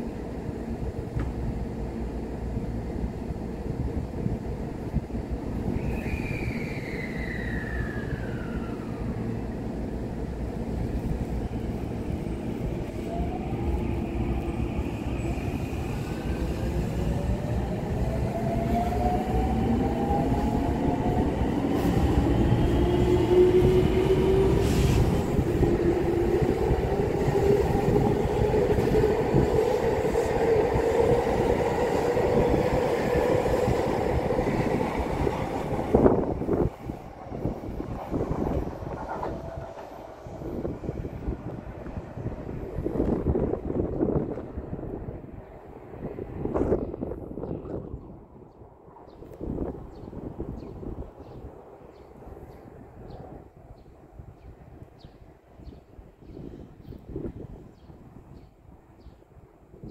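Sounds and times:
wheels rumbling on rails: 6.5s - 45.2s.

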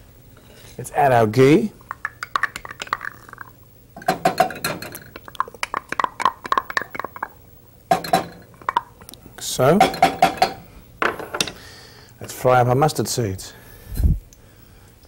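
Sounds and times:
metal spoon clinking against pot: 4.0s - 8.9s, 9.8s - 10.6s.

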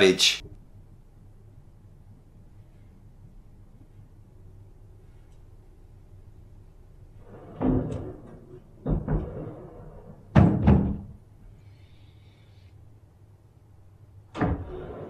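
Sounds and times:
loud knocks: 10.3s - 11.1s.

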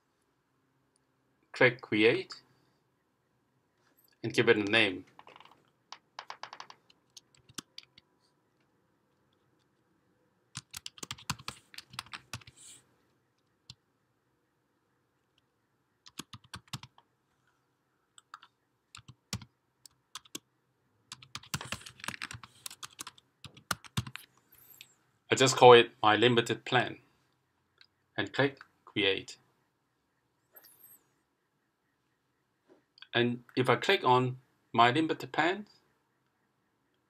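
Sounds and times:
keyboard typing: 4.6s - 8.1s, 10.5s - 12.7s, 15.4s - 17.1s, 18.1s - 20.5s, 21.1s - 24.9s.

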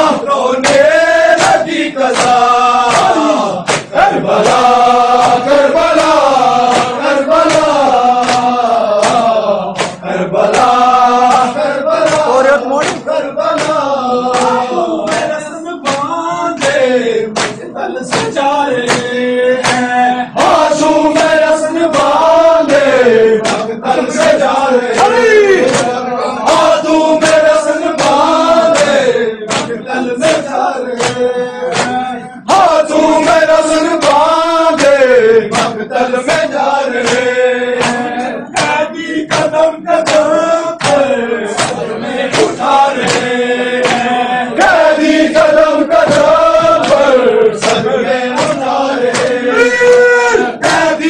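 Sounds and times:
men chanting: 0.0s - 51.0s
hands striking chests: 0.6s - 4.6s, 5.2s - 10.7s, 17.4s - 19.9s.

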